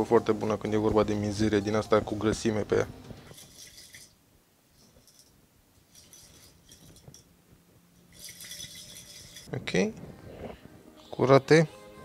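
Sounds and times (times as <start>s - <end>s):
metal parts clinking in glass jar: 3.3s - 4.2s, 4.8s - 7.3s, 8.0s - 9.5s.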